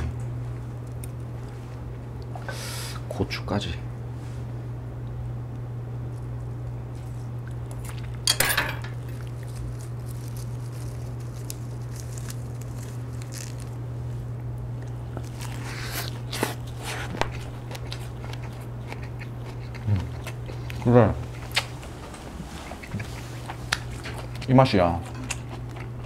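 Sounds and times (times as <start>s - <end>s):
steady low hum: 0.0s - 26.0s
crunchy bite: 9.0s - 13.8s
quiet chewing: 9.0s - 26.0s.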